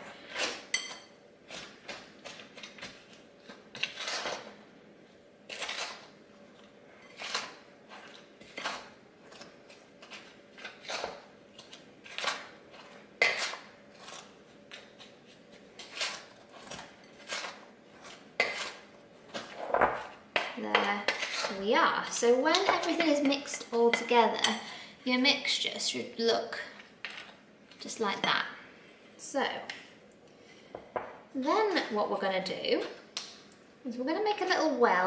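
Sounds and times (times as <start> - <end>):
wooden spoon scraping glass bowl: 15.8 - 18.8.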